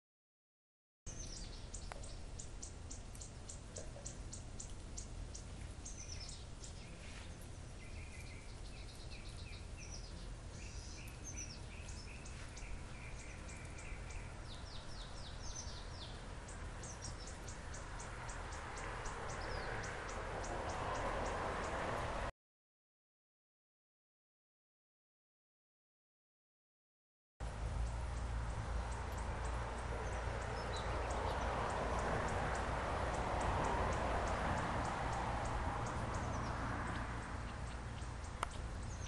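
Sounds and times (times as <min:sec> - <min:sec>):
birds chirping: 0:01.1 - 0:22.0, 0:27.4 - 0:39.0.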